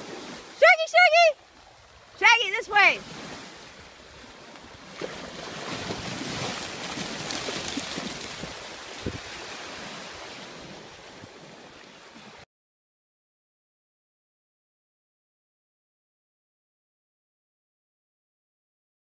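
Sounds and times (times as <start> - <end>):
dogs splashing in surf: 0.0 - 12.4
waves: 0.0 - 12.5
wind on microphone: 5.5 - 11.6.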